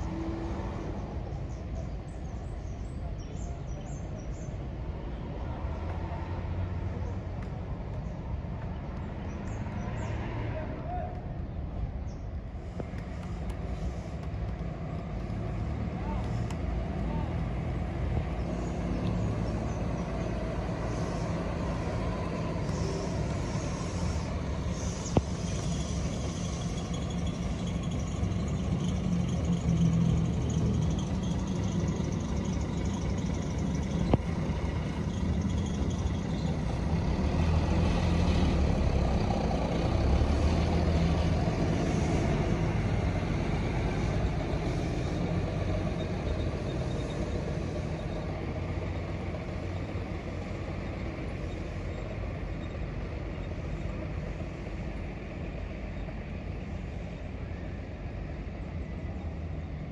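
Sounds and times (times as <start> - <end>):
bus engine droning: 0.0 - 59.9.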